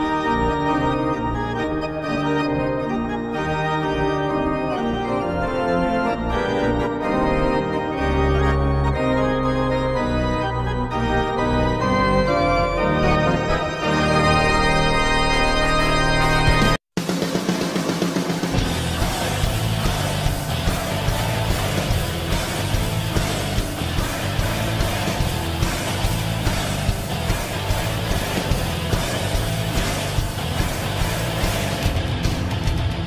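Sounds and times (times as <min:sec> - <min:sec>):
electric organ tune: 0:00.0 - 0:16.8, 0:18.6 - 0:31.9
steady bass line: 0:18.6 - 0:33.0.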